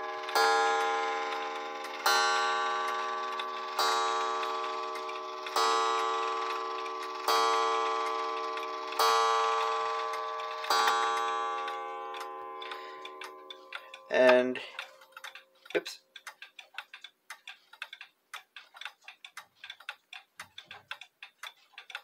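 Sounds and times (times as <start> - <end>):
clock striking coil gong: 0.0 - 14.5.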